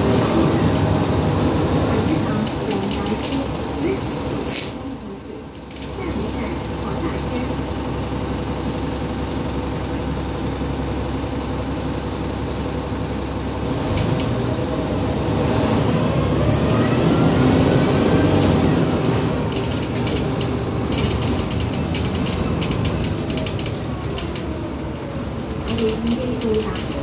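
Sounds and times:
bus engine running: 0.0 - 27.0
interior fittings rattling: 19.5 - 27.0.

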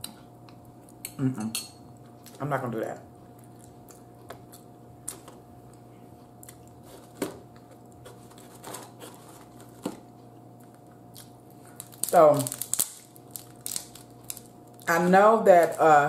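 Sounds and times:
faint steady hum: 0.0 - 16.0
crab shell cracking and snapping: 10.6 - 14.9.

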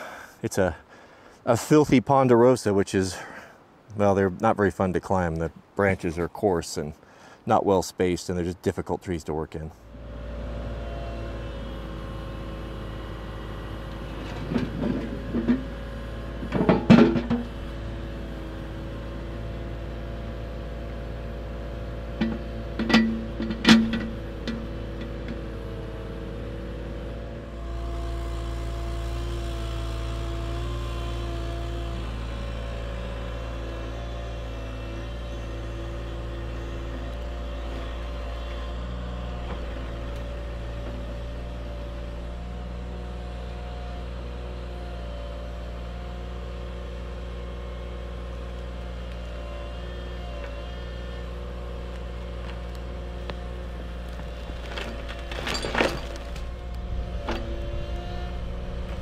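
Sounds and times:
excavator diesel engine running: 9.8 - 59.0
hydraulic whine: 9.8 - 59.0.

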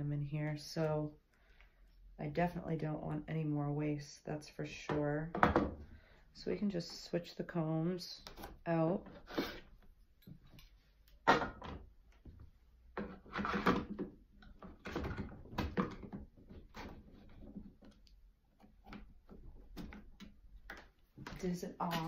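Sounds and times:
wool combs knocking and scraping: 10.2 - 22.0.

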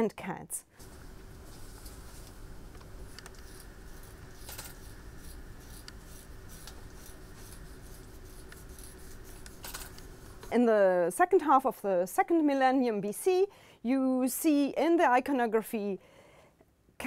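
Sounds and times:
steady low hum: 0.6 - 11.1
scalpel scraping bone: 3.1 - 10.5.

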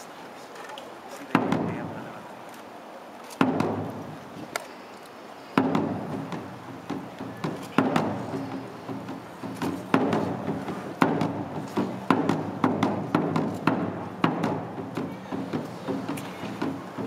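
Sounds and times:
drum strikes: 1.3 - 2.0, 3.4 - 4.2, 5.6 - 17.0.

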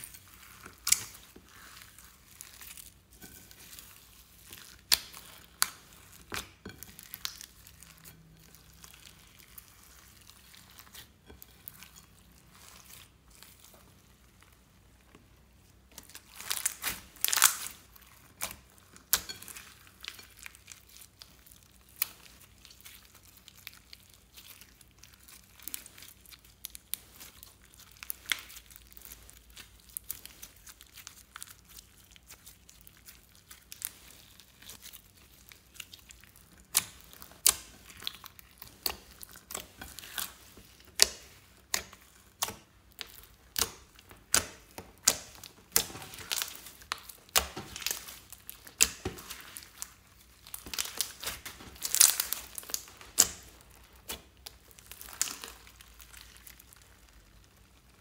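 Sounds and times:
slime squished with sticky clicks: 35.7 - 56.9.

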